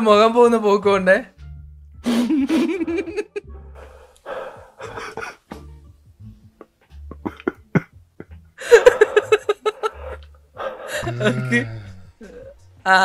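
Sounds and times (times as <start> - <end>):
person laughing: 2.1 - 3.5, 4.8 - 5.5, 6.6 - 10.3, 10.9 - 12.5
person breathing hard and gasping: 3.8 - 5.4, 8.6 - 12.6.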